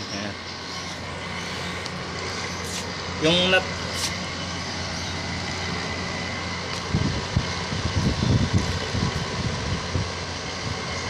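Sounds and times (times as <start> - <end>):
air conditioner fan humming: 0.0 - 11.0
wind gusts on microphone: 6.7 - 11.0.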